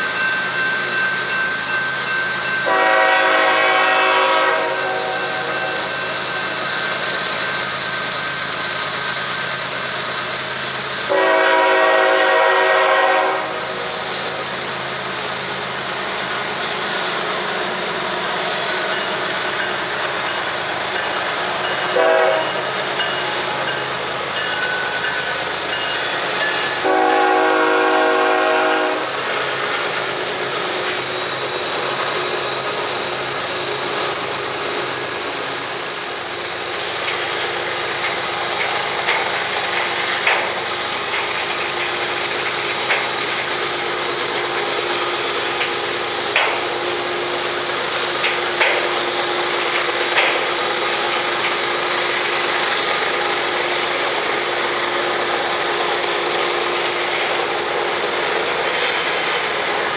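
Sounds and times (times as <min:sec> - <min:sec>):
train rumble and rail noise: 0:00.0 - 0:59.9
locomotive horn: 0:02.6 - 0:05.8, 0:11.1 - 0:13.9, 0:21.9 - 0:22.7, 0:26.8 - 0:29.2.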